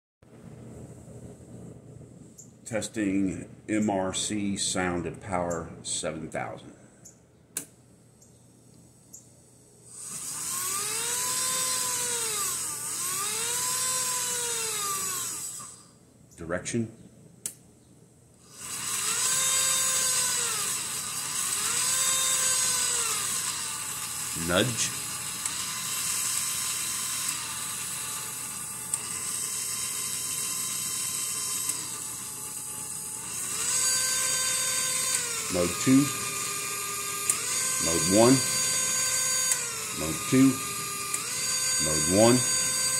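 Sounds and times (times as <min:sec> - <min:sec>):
synthesized locomotive engine buzz: 0:09.9 - 0:16.0, 0:18.4 - 0:42.9.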